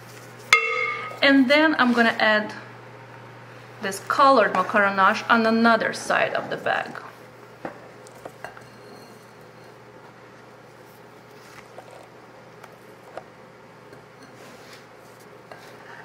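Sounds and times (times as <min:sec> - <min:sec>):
low steady hum: 0:00.0 - 0:16.0
spatula scraping glass bowl: 0:08.5 - 0:09.7.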